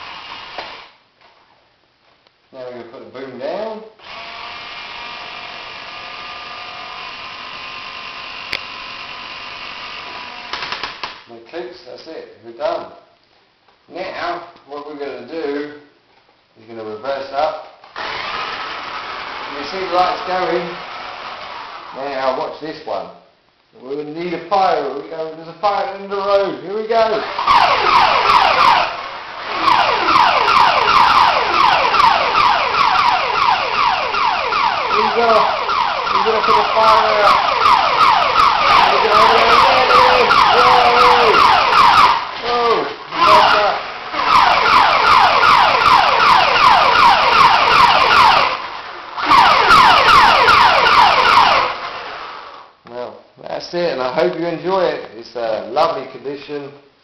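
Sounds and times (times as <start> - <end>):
toy electric motor whirring: 4.0 - 10.6, 18.0 - 19.6
toy siren falling tones: 27.2 - 48.6, 49.2 - 51.8.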